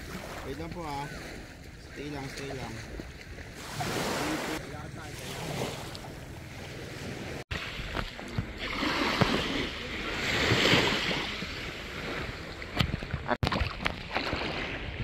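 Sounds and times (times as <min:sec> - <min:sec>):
wave washing over sand: 0:03.6 - 0:13.4.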